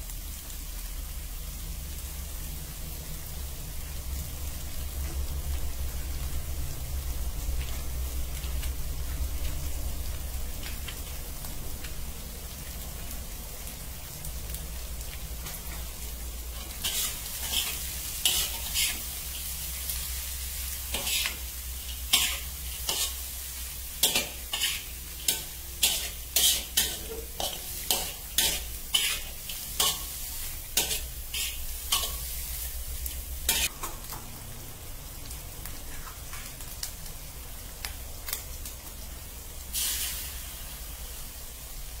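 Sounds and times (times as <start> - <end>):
food sizzling in a wok: 0.0 - 42.0
metal spatula scraping a wok: 16.6 - 19.4, 20.7 - 32.8, 33.5 - 33.7.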